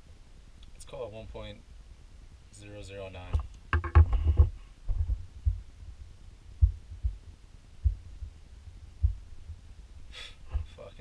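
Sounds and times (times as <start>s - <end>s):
dull low thumps: 3.4s - 10.8s
knocks on a desk: 3.7s - 4.5s.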